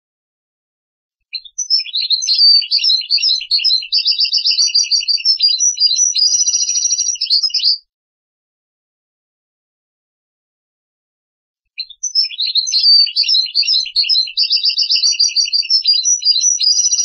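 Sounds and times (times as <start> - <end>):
goldfinch twittering song: 1.3 - 7.8, 11.8 - 17.0.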